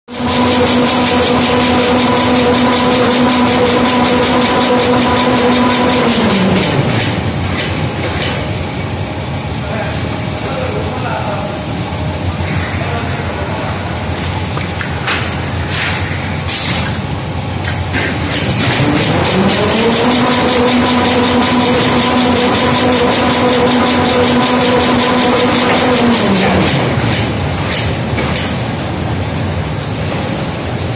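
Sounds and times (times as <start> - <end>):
fast even machine ticking: 0.1 - 8.4, 18.3 - 28.6
motor hum: 0.1 - 30.9.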